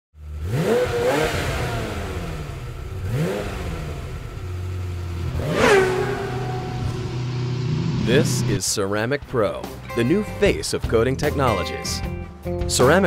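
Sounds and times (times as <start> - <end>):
car engine revving and idling: 0.2 - 8.7.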